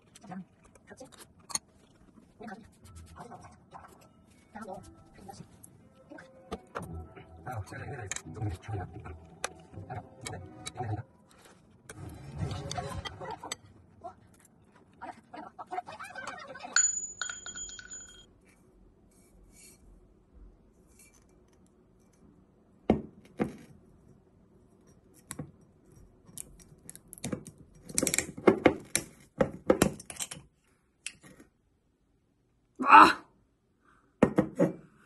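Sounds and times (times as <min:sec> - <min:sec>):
tableware clinking: 0:16.8 - 0:18.3.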